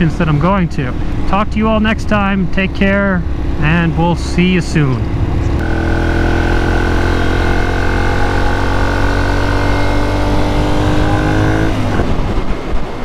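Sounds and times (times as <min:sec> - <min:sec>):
motorcycle engine running: 0:00.0 - 0:12.4
wind noise: 0:09.6 - 0:13.0.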